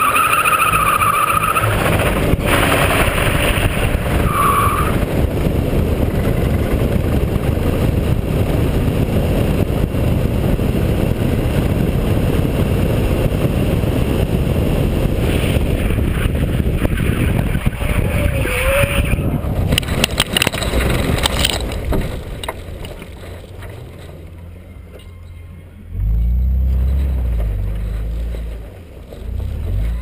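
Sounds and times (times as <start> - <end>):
car engine running: 0.0 - 30.0
wind noise on camera: 0.5 - 24.5.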